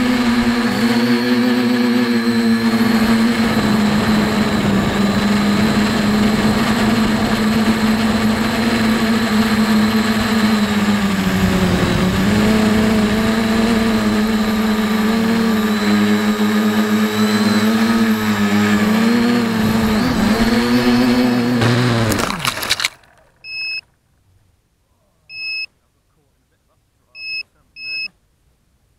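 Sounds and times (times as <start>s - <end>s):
quadcopter propellers whining: 0.0s - 23.8s
short high beeps: 23.4s - 23.8s, 25.3s - 25.7s, 27.2s - 28.2s.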